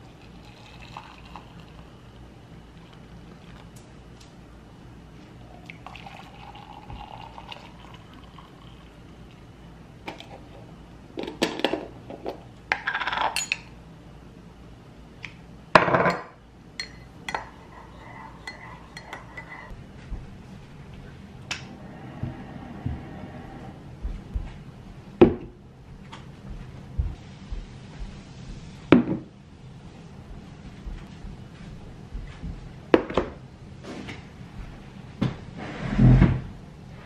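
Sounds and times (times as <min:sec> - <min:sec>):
water pouring into mug: 0:00.0 - 0:01.9, 0:05.6 - 0:09.4
spoon scraping and clinking on glass: 0:16.8 - 0:19.7.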